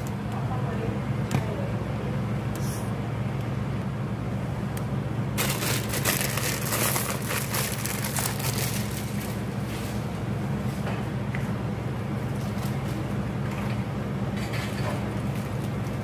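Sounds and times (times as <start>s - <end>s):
dry crinkling and crackling: 5.4s - 9.6s.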